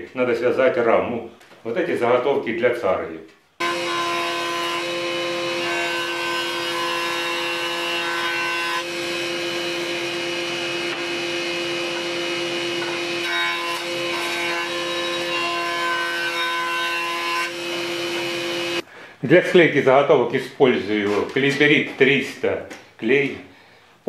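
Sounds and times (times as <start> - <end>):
jointer whining: 3.6 - 15.4, 16.5 - 18.9
wood cutting noise: 3.6 - 18.9.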